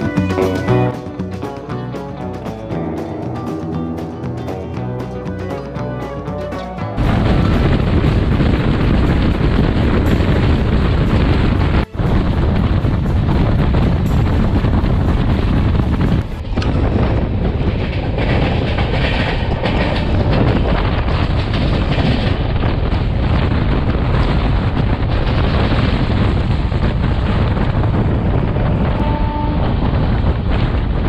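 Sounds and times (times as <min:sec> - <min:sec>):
train rumble: 0:00.0 - 0:31.0
wheels clattering over rail joints: 0:00.0 - 0:31.0
wind rushing past microphone: 0:06.9 - 0:31.0.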